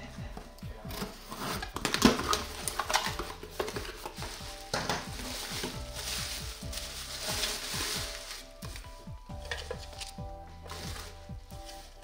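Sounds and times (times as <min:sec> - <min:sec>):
packaging crinkling and rustling: 0:00.9 - 0:12.0.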